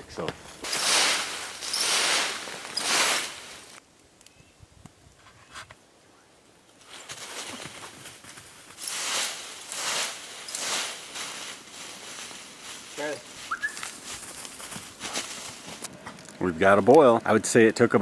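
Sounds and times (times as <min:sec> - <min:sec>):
rake swishing through leaves: 0:00.6 - 0:03.8, 0:06.8 - 0:15.9.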